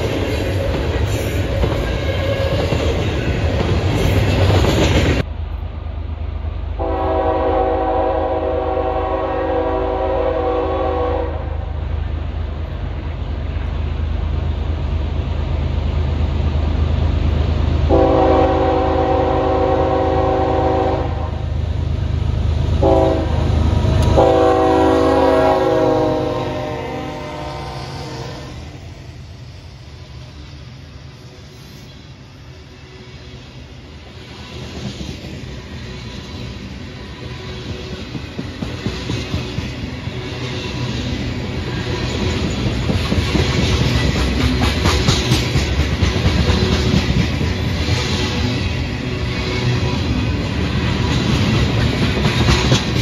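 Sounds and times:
low rumble of passing train: 0.0 - 53.0
locomotive air horn chord: 6.8 - 11.7, 17.9 - 21.4, 22.8 - 28.6.

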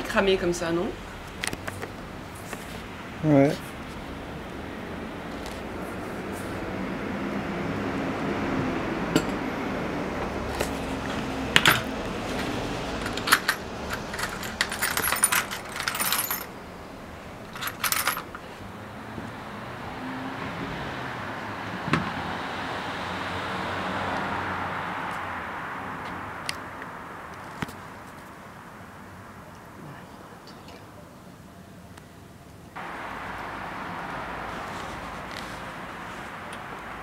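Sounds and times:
steady background noise: 0.0 - 37.0
metal tools clinking and rattling: 11.6 - 16.5, 17.4 - 18.5.

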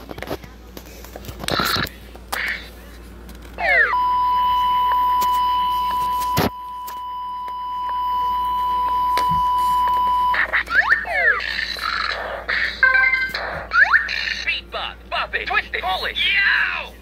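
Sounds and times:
steady beep tone: 3.6 - 10.4.

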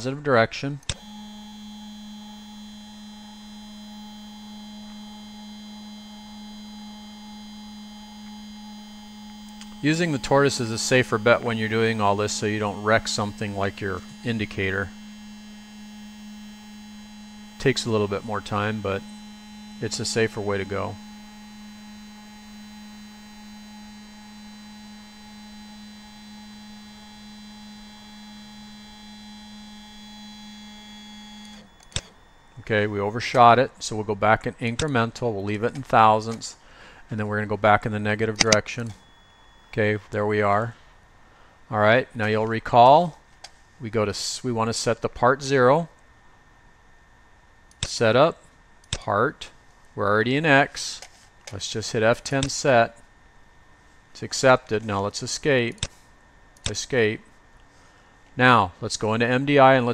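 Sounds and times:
stepper motor humming: 0.8 - 40.7
sharp click: 48.8 - 49.1.

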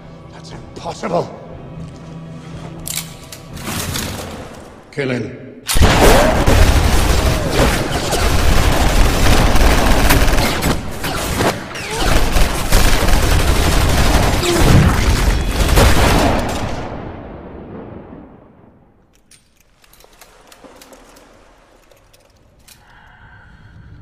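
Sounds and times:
barrage of gunshots: 5.7 - 16.8.

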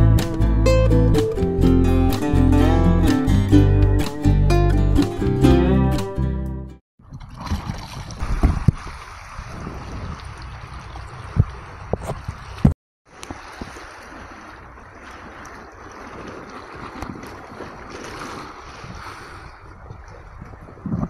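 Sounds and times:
wind: 7.0 - 21.0
sea water rushing: 7.3 - 21.0.

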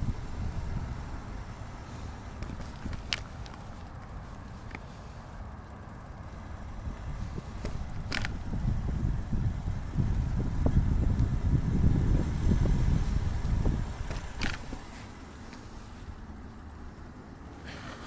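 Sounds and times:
wind buffeting microphone: 0.0 - 3.9, 6.7 - 14.9
bicycle tyre rumble: 0.0 - 18.0.

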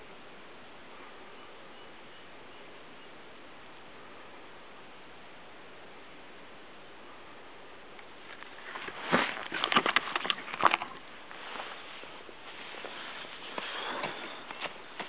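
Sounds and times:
clothing rustling and crackling: 8.2 - 15.0
steady hiss: 11.0 - 15.0.

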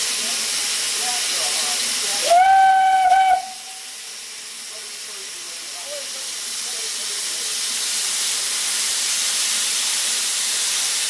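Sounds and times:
steam locomotive hissing: 0.0 - 11.0
steam whistle: 2.2 - 3.9.

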